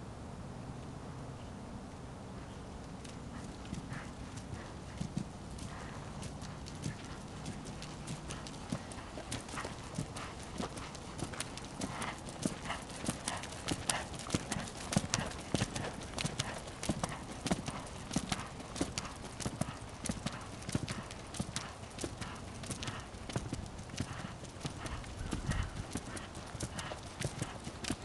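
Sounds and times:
horse hoofbeats on dirt: 0:02.9 - 0:28.0.

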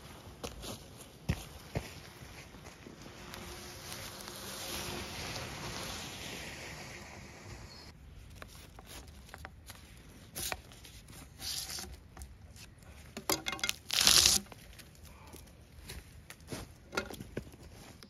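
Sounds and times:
bark tearing off a log: 0:13.2 - 0:14.9.

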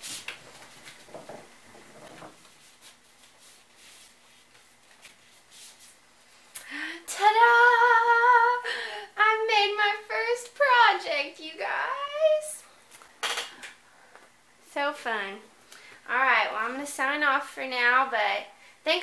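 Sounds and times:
woman singing: 0:07.0 - 0:12.6.

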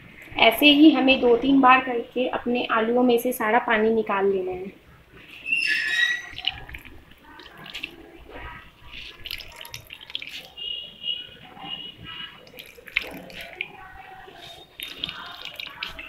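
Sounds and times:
water trickling into plastic bowl: 0:05.3 - 0:16.0.

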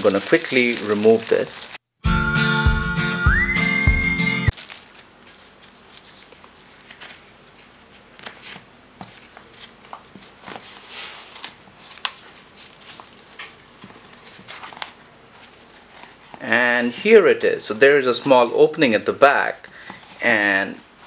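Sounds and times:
plastic wrapping crinkling: 0:00.0 - 0:01.8, 0:04.5 - 0:08.6, 0:09.4 - 0:16.5.

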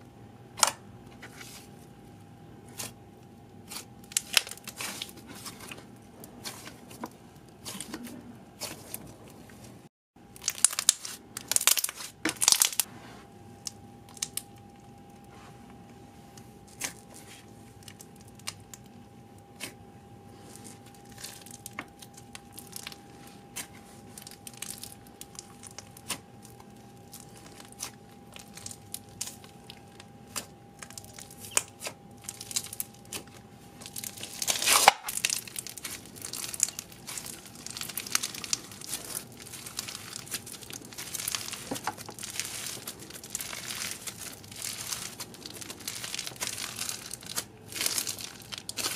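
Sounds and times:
slime crackling and squishing: 0:01.2 - 0:12.9, 0:13.6 - 0:15.2, 0:16.4 - 0:48.9.

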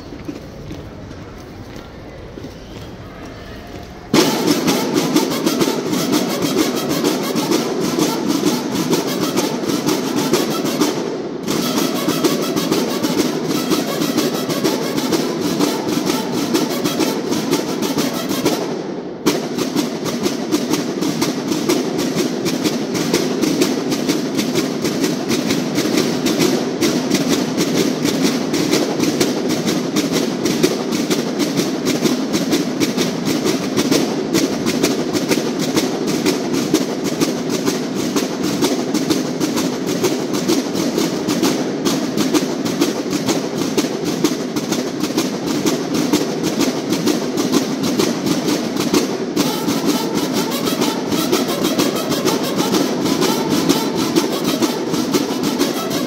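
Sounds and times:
marching snare drums: 0:04.1 - 0:56.0.

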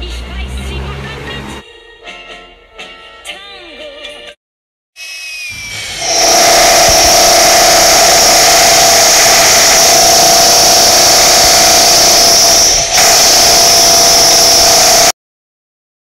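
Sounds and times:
power tool whining: 0:05.0 - 0:15.2.

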